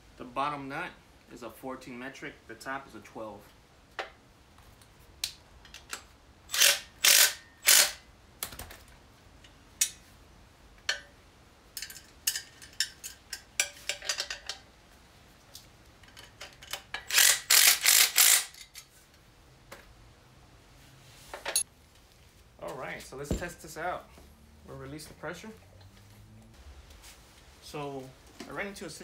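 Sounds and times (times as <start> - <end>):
impact driver bursts: 6.5 - 8.0
metal clicks and tool handling: 11.7 - 14.7, 15.5 - 19.2.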